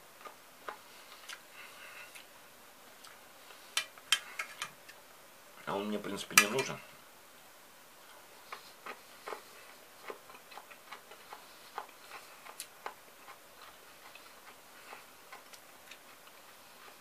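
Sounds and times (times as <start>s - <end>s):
cucumber being chewed: 0.2s - 2.3s, 8.0s - 17.0s.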